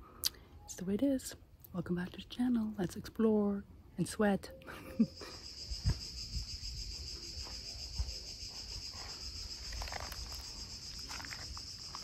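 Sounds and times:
insects chirring: 4.4 - 12.0.

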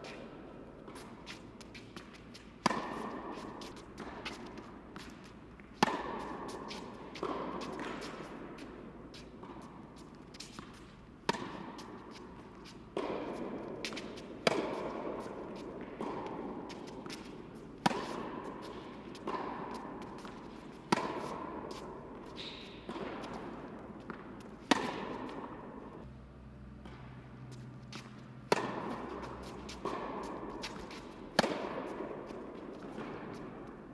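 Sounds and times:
rackets hitting tennis ball: 0.0 - 33.9.

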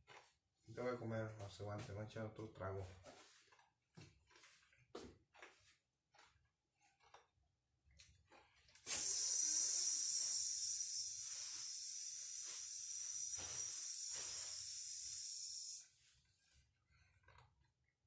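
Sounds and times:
steady high hiss: 8.9 - 15.9.

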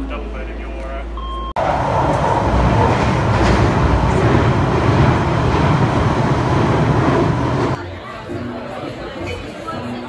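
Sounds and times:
moving vehicle rumble: 1.6 - 7.8.

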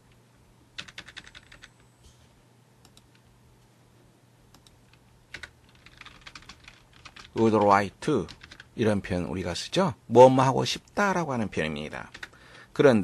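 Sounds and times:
faint keyboard typing: 0.1 - 1.9, 2.8 - 3.3, 4.5 - 8.8, 12.0 - 12.4.

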